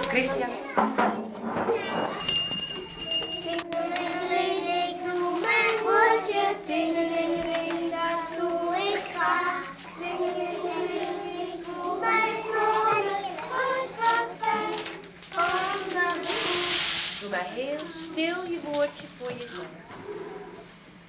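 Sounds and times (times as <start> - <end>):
children singing: 3.5 - 17.1.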